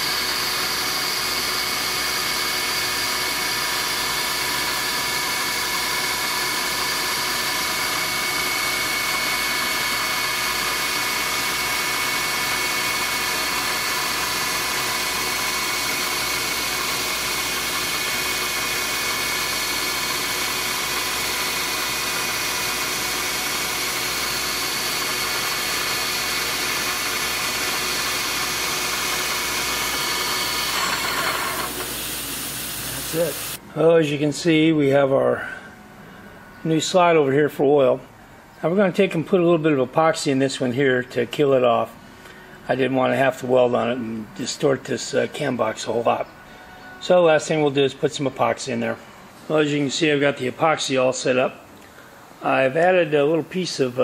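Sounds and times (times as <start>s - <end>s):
milling machine whine: 0.0s - 33.6s.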